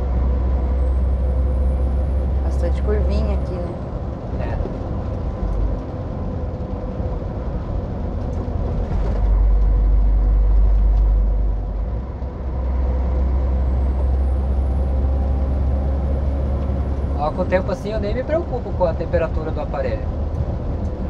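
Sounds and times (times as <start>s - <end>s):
diesel truck engine drone: 0.0s - 21.0s.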